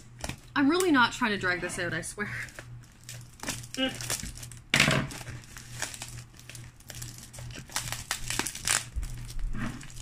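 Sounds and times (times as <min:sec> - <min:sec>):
paper and cardboard crinkling: 0:02.4 - 0:10.0.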